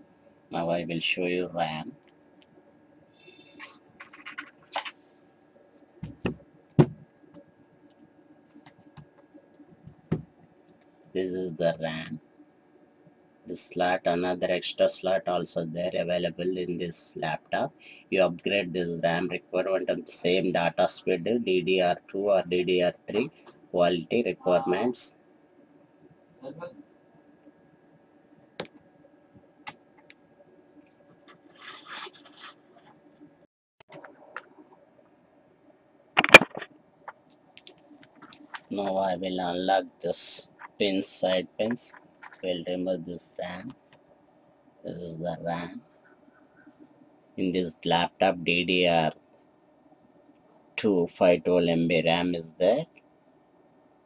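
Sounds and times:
scratchy rubbing: 3.4s - 7.0s, 30.8s - 33.0s
sharp knocks and clicks: 36.2s - 38.6s.

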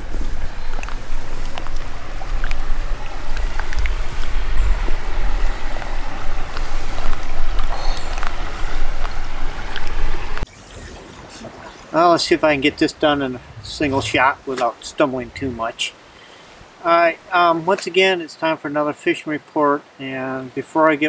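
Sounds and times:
river water rushing and splashing: 0.0s - 21.0s
heavy low rumble: 11.2s - 16.0s.

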